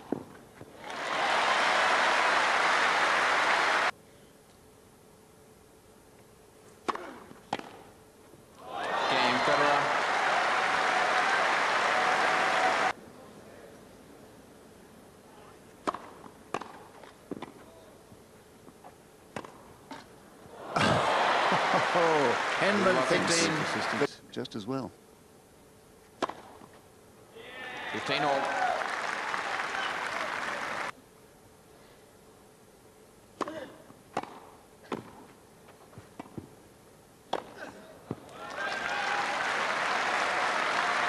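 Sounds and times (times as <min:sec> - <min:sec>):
crowd applause: 0:00.8 - 0:03.9, 0:08.7 - 0:13.0, 0:20.6 - 0:24.1, 0:28.0 - 0:30.9, 0:38.4 - 0:41.0
rackets hitting tennis balls: 0:06.8 - 0:07.9, 0:15.8 - 0:17.7, 0:18.8 - 0:20.1, 0:26.1 - 0:26.8, 0:33.4 - 0:36.6, 0:37.3 - 0:38.4
tennis racket hitting ball: 0:15.8 - 0:17.6, 0:33.4 - 0:35.3
broadcast hiss: 0:21.5 - 0:33.2.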